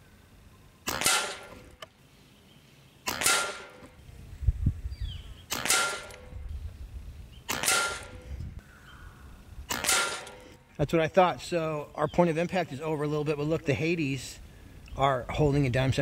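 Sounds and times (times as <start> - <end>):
air rifle shots: 0.8 - 1.8, 3.0 - 4.0, 5.5 - 6.4, 7.5 - 8.2, 9.7 - 10.6.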